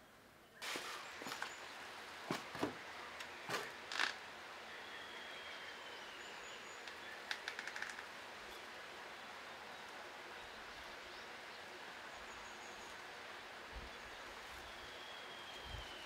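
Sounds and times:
steady hiss: 0.0 - 16.0
rustling knocks: 2.3 - 2.8
faint thin whistle: 14.6 - 16.0.

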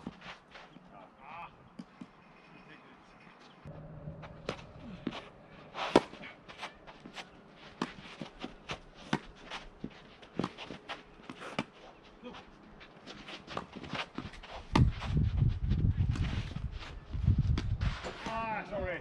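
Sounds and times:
rackets striking tennis ball: 4.2 - 11.9
tennis ball bouncing: 5.9 - 9.4.

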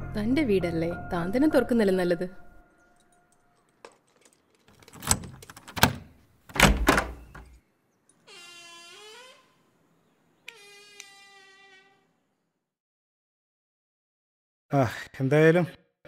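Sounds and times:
door lock clunking and rattling: 3.9 - 7.6
door hinges creaking: 4.2 - 9.8, 10.4 - 12.2.

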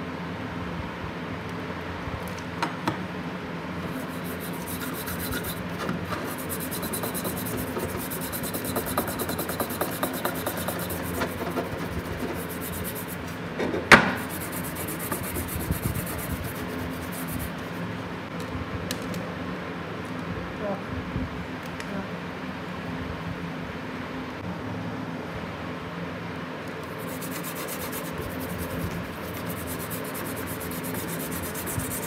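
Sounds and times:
toothbrush scrubbing metal wrench: 4.0 - 13.3, 14.3 - 17.5, 26.9 - 32.0.

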